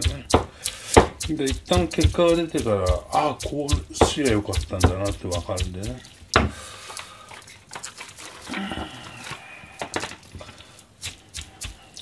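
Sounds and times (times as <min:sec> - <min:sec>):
cleaver knocking on cutting board: 0:00.0 - 0:06.6.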